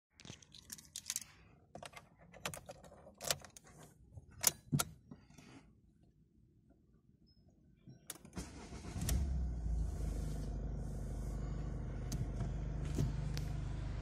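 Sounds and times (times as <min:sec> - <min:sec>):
car keys jangling: 0:00.5 - 0:03.8.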